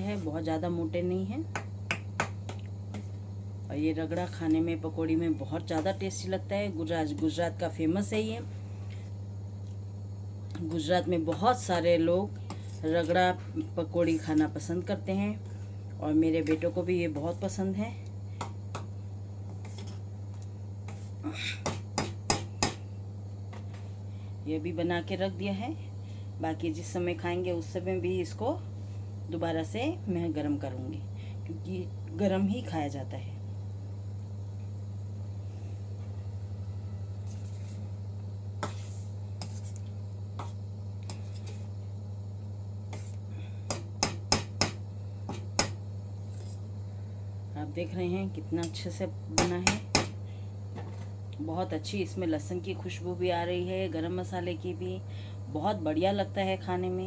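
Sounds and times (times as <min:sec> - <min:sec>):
steady low hum: 0:00.0 - 0:57.0
low hum: 0:33.1 - 0:44.0.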